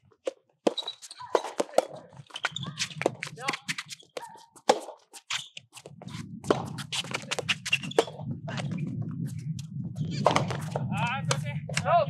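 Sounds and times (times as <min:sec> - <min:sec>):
shoes scuffing on court: 0:00.2 - 0:09.4
steady low rumble: 0:05.9 - 0:12.0
tennis ball strikes: 0:06.5 - 0:06.8.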